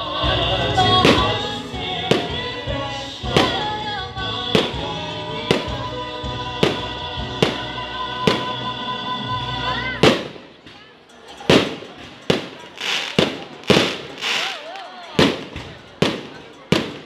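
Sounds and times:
loud music: 0.0 - 10.4
fireworks bangs with echo: 0.8 - 3.8, 4.4 - 8.7, 10.0 - 10.8, 11.4 - 17.0.

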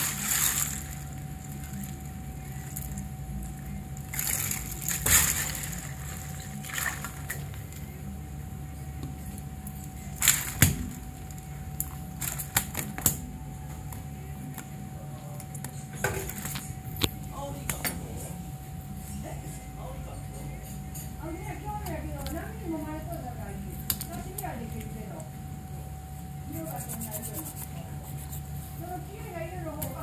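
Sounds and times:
steady hum: 0.0 - 30.0
wet slaps and splashes of fish: 4.1 - 7.4, 23.8 - 24.5.

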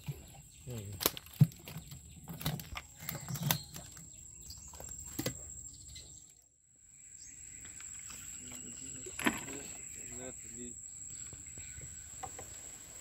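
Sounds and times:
cane trap knocks and rattles: 0.9 - 3.9, 9.1 - 9.8.

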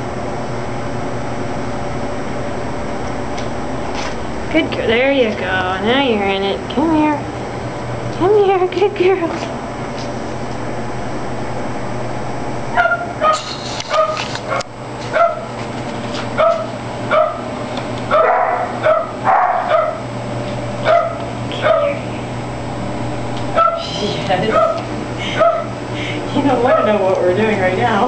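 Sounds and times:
dog barking: 12.7 - 15.5, 16.4 - 17.5, 18.1 - 20.0, 20.8 - 22.0, 23.6 - 23.8, 24.5 - 25.8, 26.7 - 27.0.

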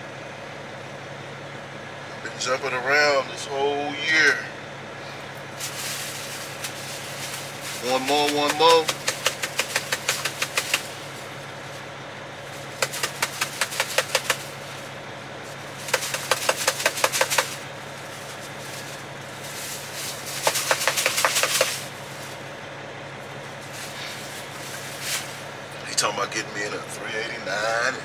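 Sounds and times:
truck engine idling: 0.0 - 28.0
rapid clicking: 7.6 - 11.0, 12.8 - 14.6, 15.8 - 17.7, 20.2 - 21.9.

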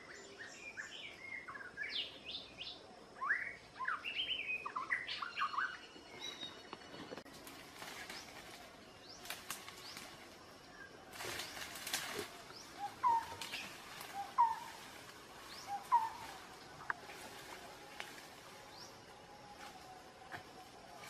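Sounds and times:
rustling through leaves: 6.2 - 21.0
high bird chirps: 12.5 - 14.8
bird call low then rising: 15.5 - 16.8.

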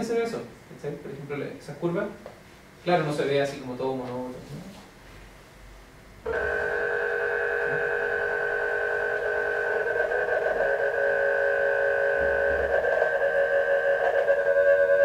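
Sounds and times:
electronic sine tone chord: 6.3 - 15.0.

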